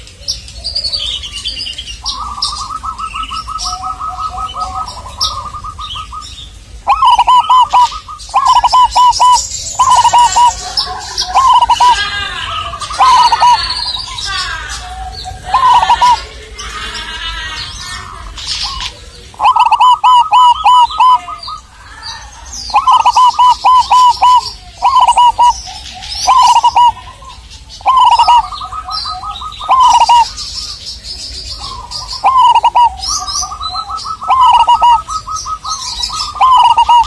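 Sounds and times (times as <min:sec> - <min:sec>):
dove cooing: 0:00.0 - 0:37.0
small birds chirping: 0:00.0 - 0:37.0.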